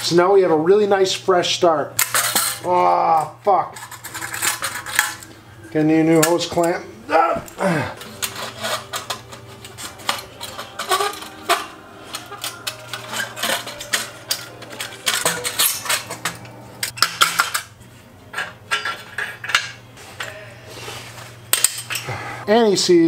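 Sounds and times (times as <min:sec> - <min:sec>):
steady low hum: 0:00.0 - 0:23.0
metal clinks and clanks: 0:08.0 - 0:17.5.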